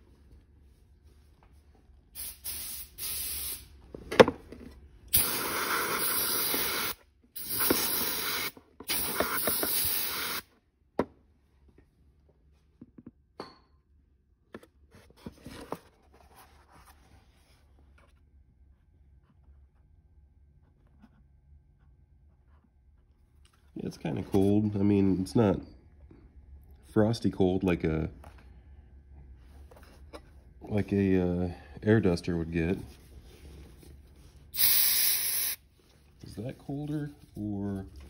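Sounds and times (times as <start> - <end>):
aerosol spray hissing: 2.2 - 3.7, 5.2 - 10.4, 34.6 - 35.6.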